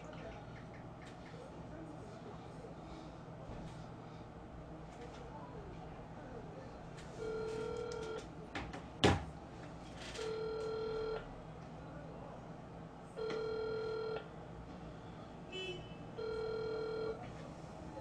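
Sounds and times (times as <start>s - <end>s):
phone ringback tone: 7.2s - 8.2s, 10.2s - 11.2s, 13.2s - 14.2s, 16.2s - 17.2s.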